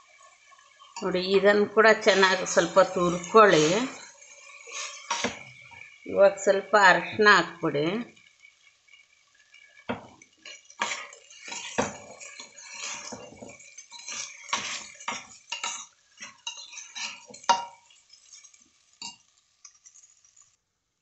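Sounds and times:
steel spoon scraping a pot: 2.0 - 6.0, 8.2 - 20.6.

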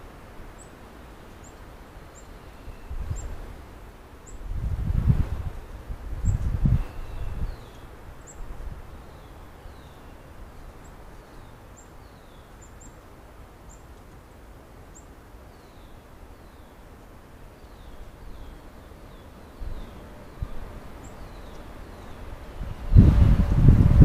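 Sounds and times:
small birds chirping: 6.2 - 14.2, 14.8 - 22.6.

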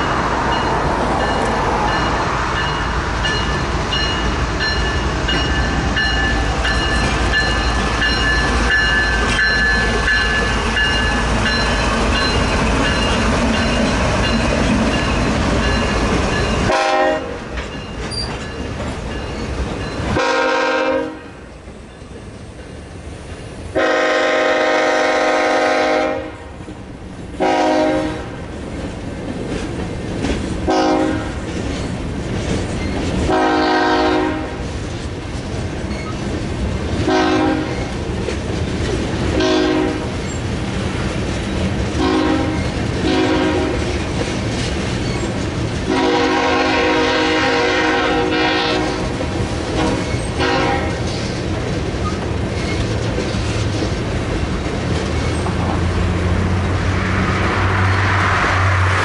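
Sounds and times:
freight train rumbling and clattering: 0.0 - 59.0
locomotive horn blasts: 16.6 - 17.4, 20.1 - 21.4, 23.8 - 26.5, 27.4 - 28.3, 30.7 - 31.4, 33.3 - 34.6, 37.1 - 37.7, 39.4 - 40.1, 42.0 - 43.8, 45.9 - 49.1, 49.8 - 51.0
car driving past: 55.8 - 59.0.

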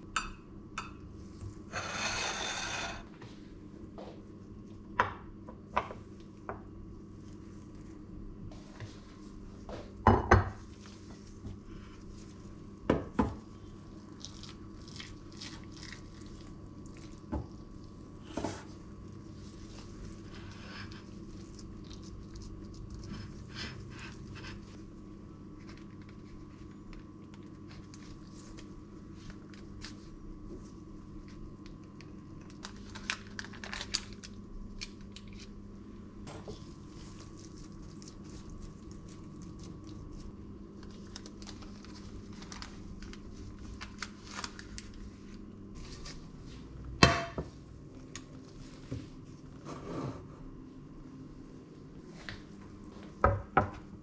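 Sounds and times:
ground meat squelching: 13.8 - 25.0, 36.6 - 45.2.

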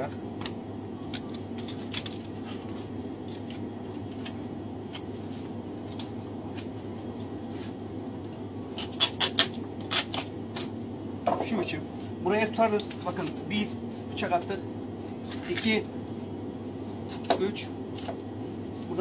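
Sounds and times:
steady low hum: 0.0 - 19.0
knife clicking and scraping on bone: 8.8 - 10.7.

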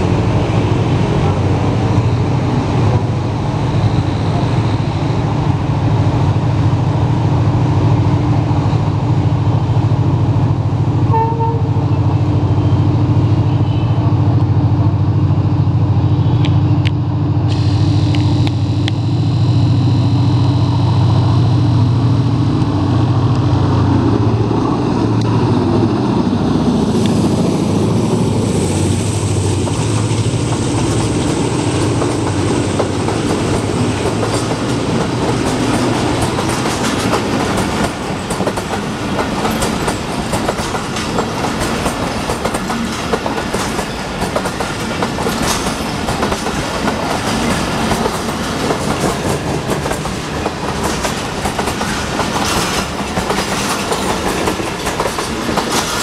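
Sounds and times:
diesel locomotive engine drone: 0.0 - 56.0
train wheels clattering over rail joints: 29.7 - 56.0.

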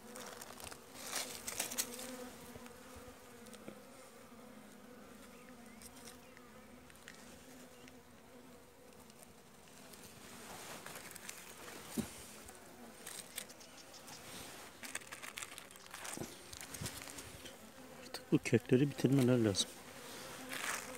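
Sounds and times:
honeybees buzzing: 0.0 - 20.9
plastic wrapping crackling: 14.8 - 17.2.

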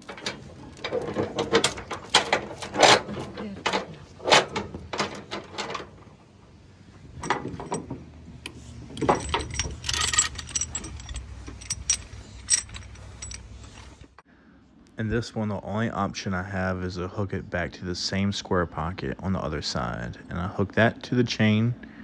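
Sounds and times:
chain clinking against metal rail: 0.0 - 6.3, 7.2 - 14.1
chain hooks clanking: 0.0 - 6.4, 7.1 - 14.2.

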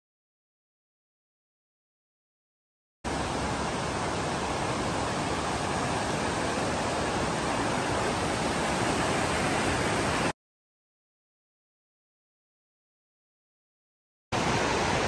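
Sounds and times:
water rushing over rocks: 3.1 - 10.3, 14.4 - 15.0.

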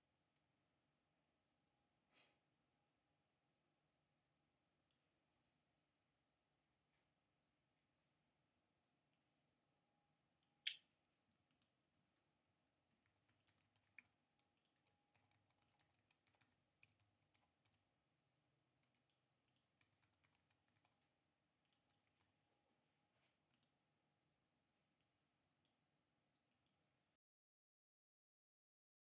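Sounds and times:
keyboard typing: 13.1 - 17.8.

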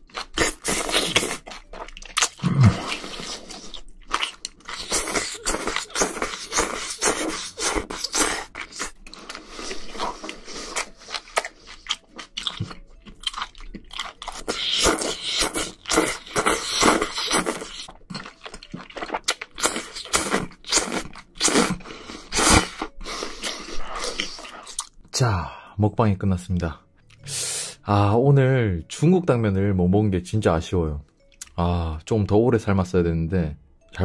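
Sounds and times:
chewing: 0.2 - 24.9
slurping noodles: 4.7 - 11.9, 14.4 - 17.9, 19.0 - 24.8.

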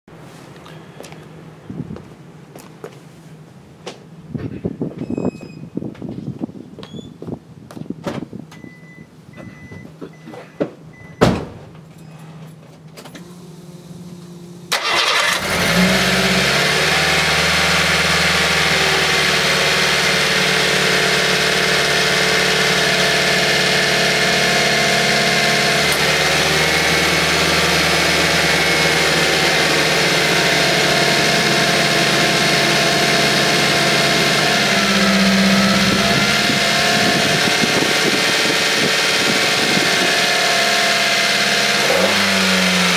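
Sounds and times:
car engine starting and idling: 12.6 - 42.9.

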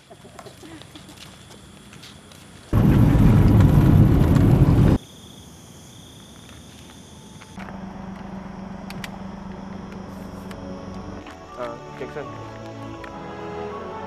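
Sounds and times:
road and wind noise in car: 2.7 - 5.0
low hum: 2.8 - 5.0.

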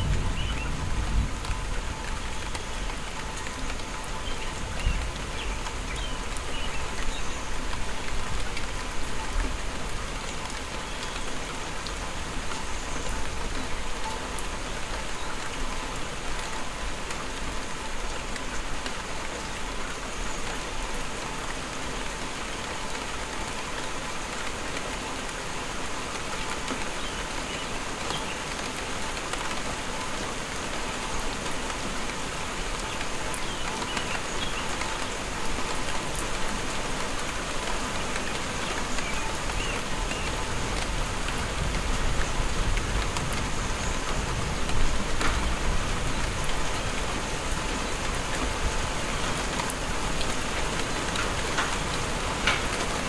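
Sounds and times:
rain falling: 0.0 - 53.0.

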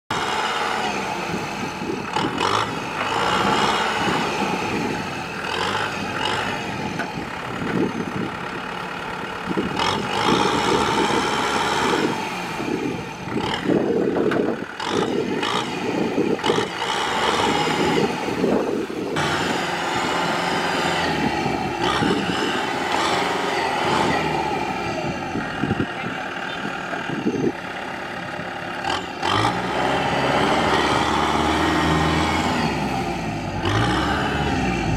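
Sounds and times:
tractor diesel engine under load: 0.0 - 34.9
wheels churning through mud: 9.1 - 34.9.

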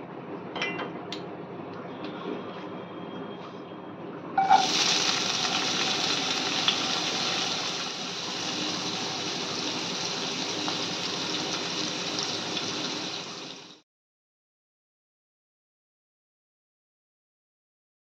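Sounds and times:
onions sizzling in hot oil: 4.4 - 13.8.

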